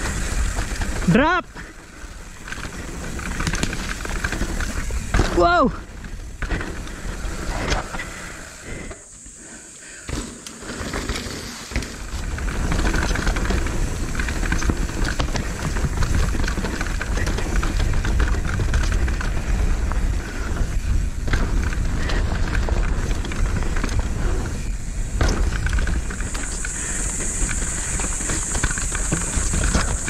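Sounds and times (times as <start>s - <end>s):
bike tyres on dirt: 0.0s - 30.0s
wind rumbling on microphone: 11.4s - 30.0s.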